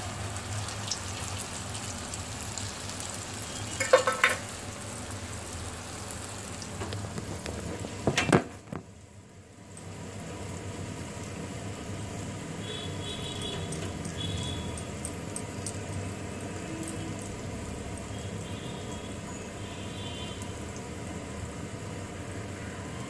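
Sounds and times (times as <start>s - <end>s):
hot oil sizzling: 0.0s - 23.0s
spoon clinking against pan: 3.8s - 4.4s.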